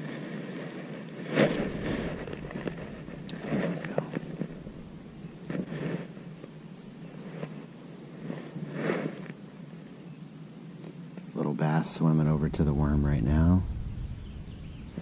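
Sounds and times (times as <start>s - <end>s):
high-pitched insect trill: 0.0s - 15.0s
soft rushing noises: 1.3s - 6.2s, 12.1s - 15.0s.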